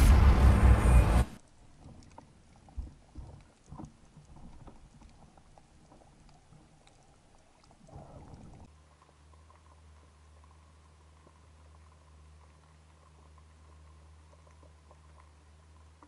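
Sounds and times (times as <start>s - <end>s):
underwater low hum: 0.0s - 16.0s
water knocks and splashes: 1.5s - 8.7s.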